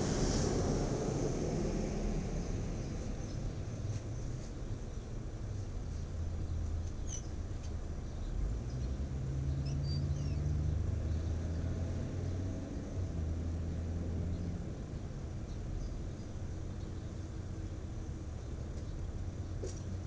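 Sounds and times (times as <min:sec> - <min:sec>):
steady low rumble: 0:00.0 - 0:09.0.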